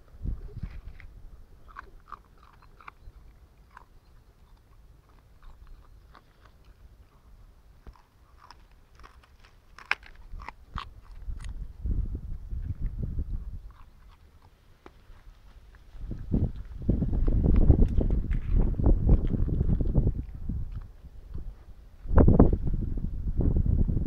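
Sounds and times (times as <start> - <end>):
puppy chewing vegetable stalks: 0.2 - 22.6.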